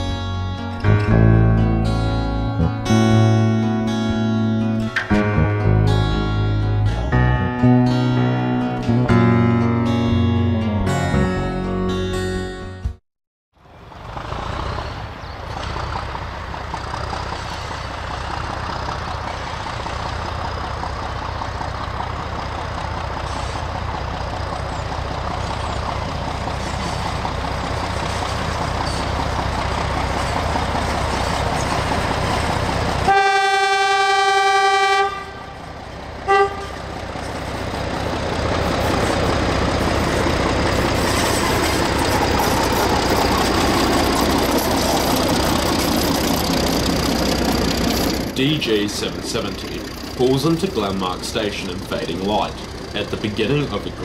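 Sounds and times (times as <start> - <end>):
diesel locomotive running: 0.0 - 12.9, 13.6 - 54.0
train horn blasts: 33.0 - 36.9.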